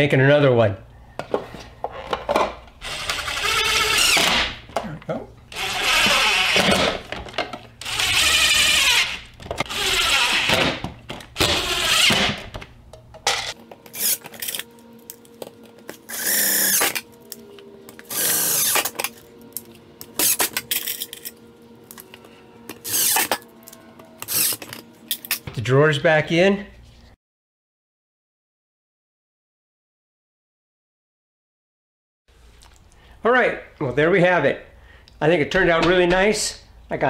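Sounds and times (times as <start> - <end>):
impact driver driving screws: 5.5 - 7.0, 7.8 - 12.6, 18.1 - 19.1, 22.8 - 23.4, 24.2 - 24.8.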